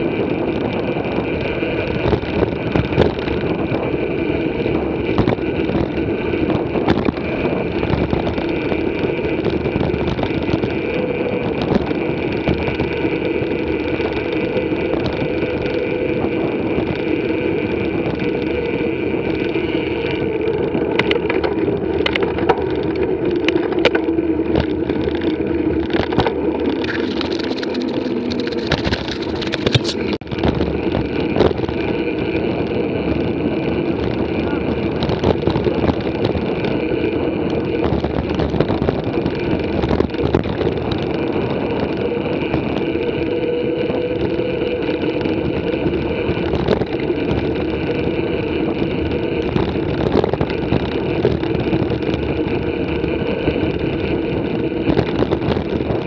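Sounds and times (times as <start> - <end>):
bike clicks and rattles: 0.0 - 56.0
bike tyres rumbling on gravel: 0.0 - 56.0.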